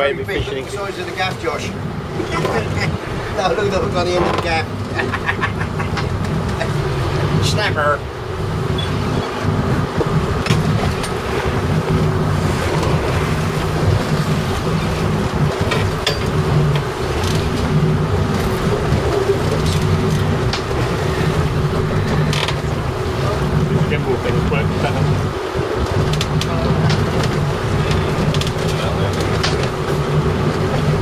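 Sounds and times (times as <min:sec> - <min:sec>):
boat engine droning: 0:00.0 - 0:31.0
choppy water: 0:00.0 - 0:31.0
wind rushing: 0:04.6 - 0:28.6.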